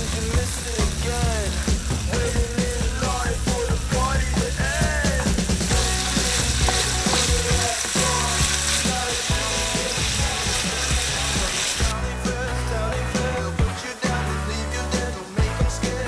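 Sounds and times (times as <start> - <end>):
bacon sizzling in a frying pan: 0.0 - 12.0
wooden spatula stirring: 5.7 - 11.5.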